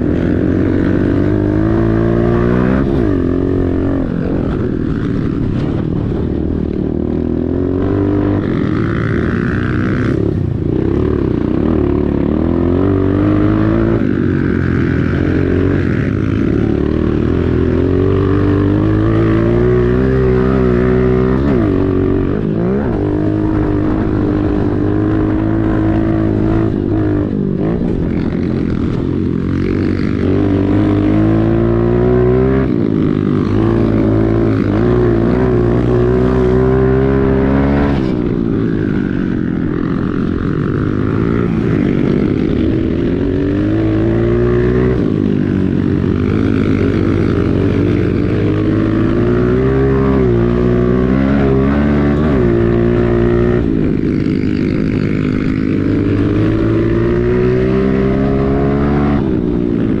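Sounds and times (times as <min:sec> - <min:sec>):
motorbike engine revving: 0:00.0 - 1:00.0.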